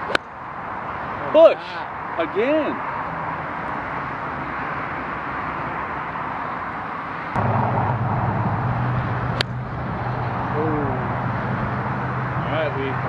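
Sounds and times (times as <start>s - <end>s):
steady low hum: 7.4s - 13.0s.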